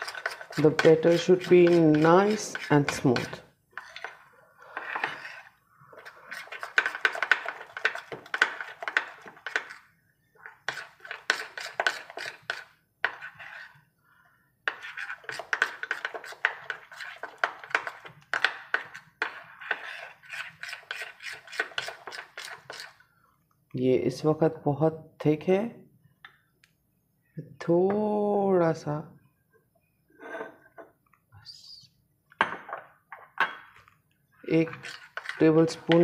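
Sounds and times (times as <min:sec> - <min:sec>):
metal spoon beating batter in bowl: 0:00.0 - 0:13.9, 0:14.6 - 0:23.1, 0:34.5 - 0:36.0.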